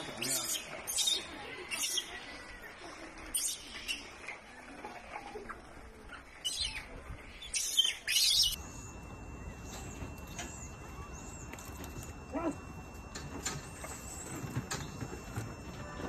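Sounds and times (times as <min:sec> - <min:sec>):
faint steady high tone: 0:08.5 - 0:16.0.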